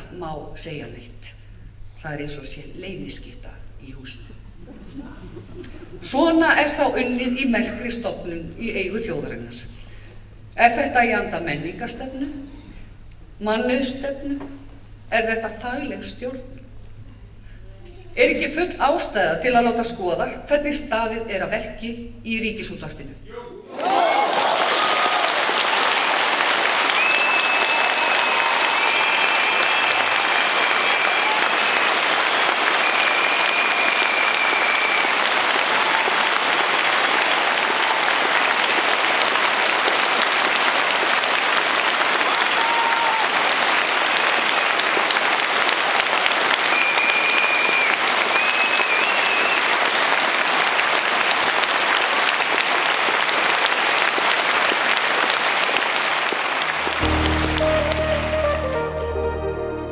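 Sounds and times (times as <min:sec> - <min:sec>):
audience applause: 0:23.7 - 0:59.4.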